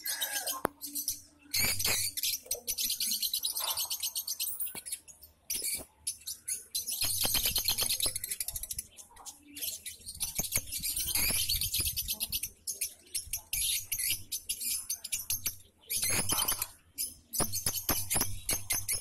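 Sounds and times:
lovebirds chirping and squeaking: 0.0 - 19.0.

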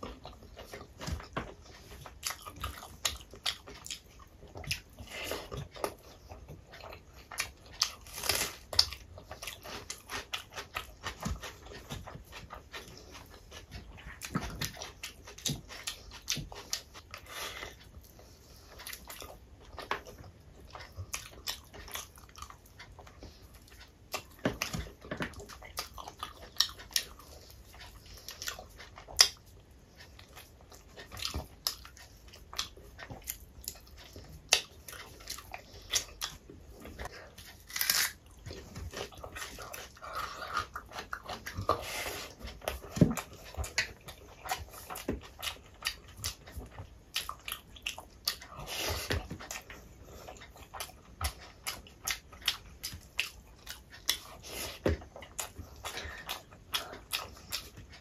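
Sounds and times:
chewing and lip-smacking: 0.0 - 58.0.

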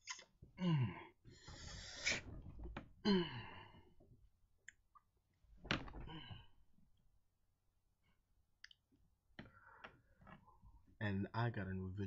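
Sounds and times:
breathy exhale: 1.3 - 2.3.

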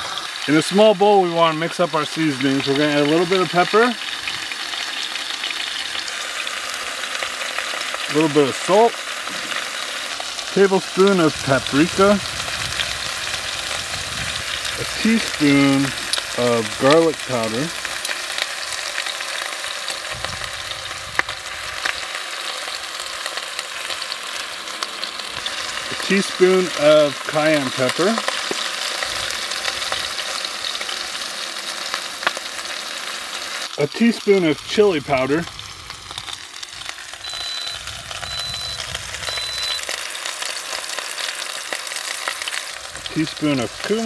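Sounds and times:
meat sizzling in hot fat: 0.0 - 44.0
high electronic beeps: 37.2 - 39.9.

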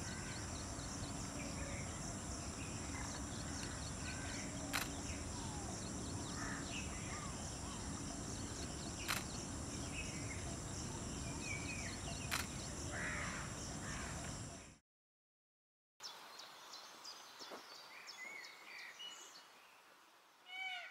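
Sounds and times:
bird calls: 0.0 - 14.8
sharp clicks: 4.7 - 5.0, 9.0 - 9.4, 12.3 - 12.6.

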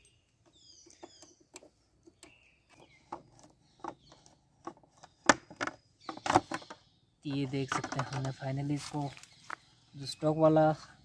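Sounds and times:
light clicks of tools and screws: 0.0 - 5.1
small birds chirping: 0.0 - 11.0.

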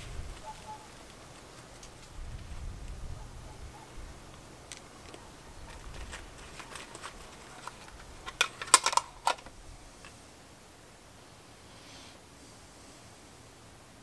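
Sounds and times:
metal tin clicking and tapping: 6.9 - 9.5.

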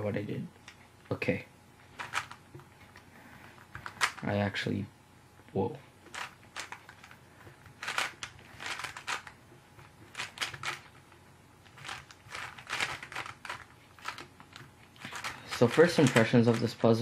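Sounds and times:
plastic puzzle cube clicking: 7.8 - 9.3, 15.0 - 16.6.

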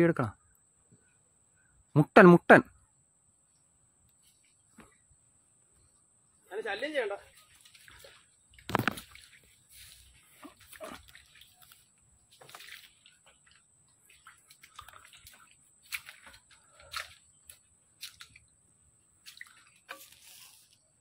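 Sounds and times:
splashes and rustles in wet mud: 7.2 - 21.0
water dripping: 7.3 - 20.8.

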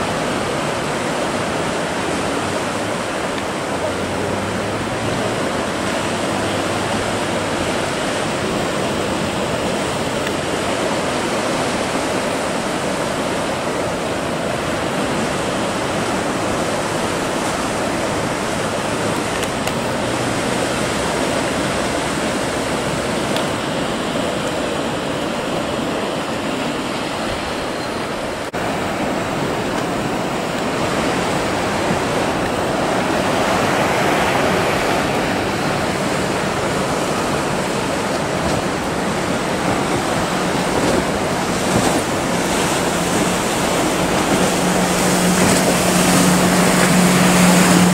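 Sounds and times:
sea swell and breaking surf: 0.0 - 47.9.

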